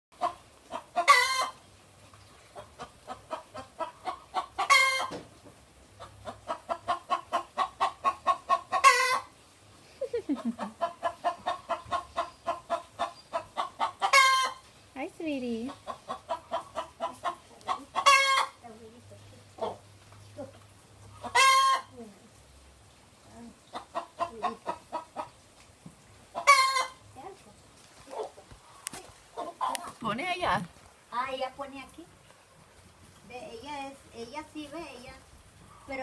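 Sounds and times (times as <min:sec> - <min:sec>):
hen cackling: 0:00.2 - 0:01.6, 0:02.6 - 0:05.2, 0:06.0 - 0:09.4, 0:10.0 - 0:14.6, 0:15.6 - 0:18.7, 0:21.1 - 0:22.0, 0:23.7 - 0:25.4, 0:26.3 - 0:27.0, 0:28.1 - 0:30.4.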